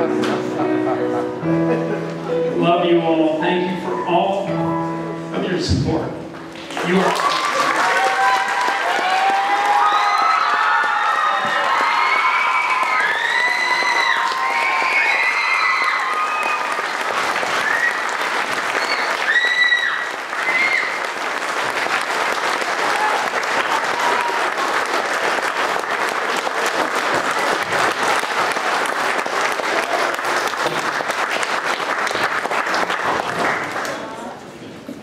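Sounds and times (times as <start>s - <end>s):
audience applauding: 6.5s - 34.4s
cheers and whoops: 7.0s - 21.2s, 22.8s - 24.8s.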